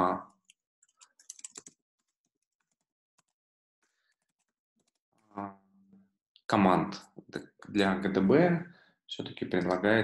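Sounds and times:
keyboard keystrokes: 0:01.2 - 0:01.8.

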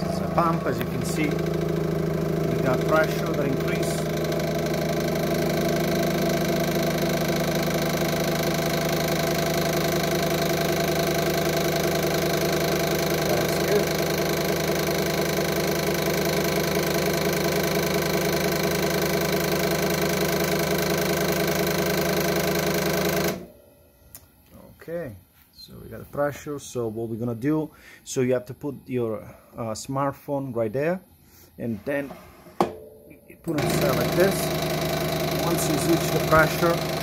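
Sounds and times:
pump humming: 0:00.0 - 0:23.7, 0:32.6 - 0:37.0.

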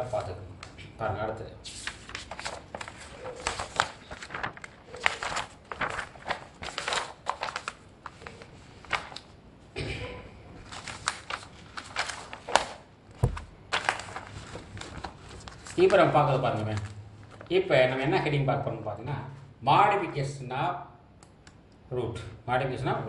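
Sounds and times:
paper pages rustling: 0:01.6 - 0:09.4, 0:10.6 - 0:17.5.

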